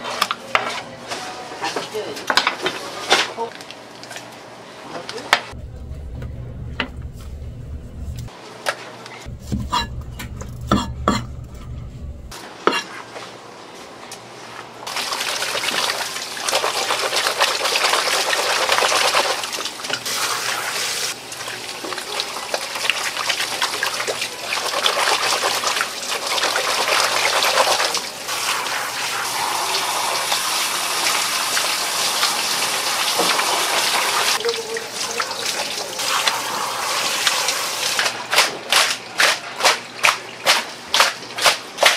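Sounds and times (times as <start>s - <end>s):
low hum: 5.6s - 8.3s, 9.3s - 12.3s
water running hard: 14.9s - 38.1s.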